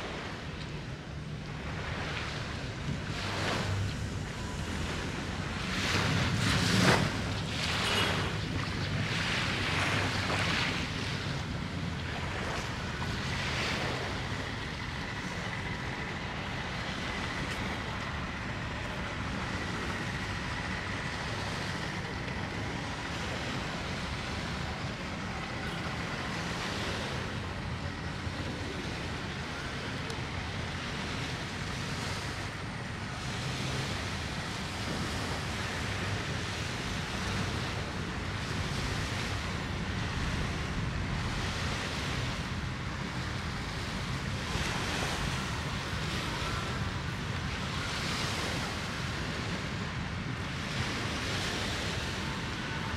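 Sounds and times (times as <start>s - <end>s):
small sea waves washing in: 0.0s - 52.9s
traffic passing: 0.0s - 52.9s.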